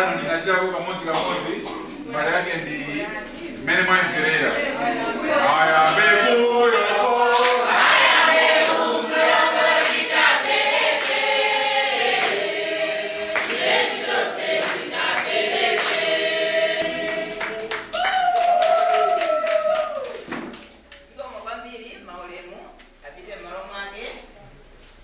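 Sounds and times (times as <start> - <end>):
group singing: 3.6 - 18.0
hand claps: 7.3 - 7.7, 8.6 - 8.9, 9.8 - 10.1, 10.8 - 11.3, 12.2 - 12.5, 13.3 - 16.1, 16.8 - 21.0.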